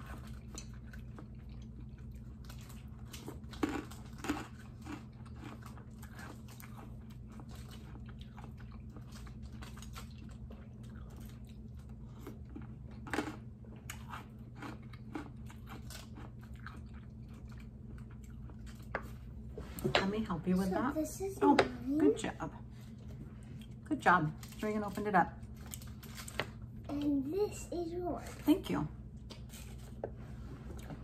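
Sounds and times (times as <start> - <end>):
chewing and crunching: 0.0 - 19.5, 22.8 - 27.2
steady low hum: 0.0 - 31.0.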